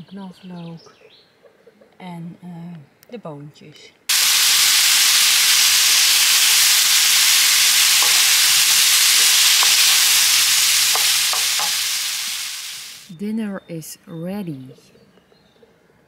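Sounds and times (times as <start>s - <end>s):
food sizzling in a wok: 4.1s - 13.1s.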